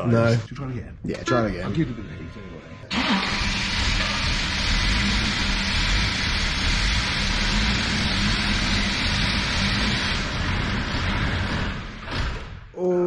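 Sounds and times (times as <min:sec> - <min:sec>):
diesel engine cranking on starter: 0:02.9 - 0:12.6.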